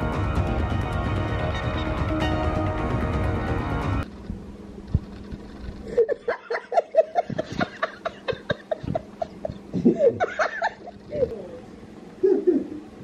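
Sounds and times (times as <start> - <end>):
man laughing: 5.8 - 11.3, 12.2 - 12.9.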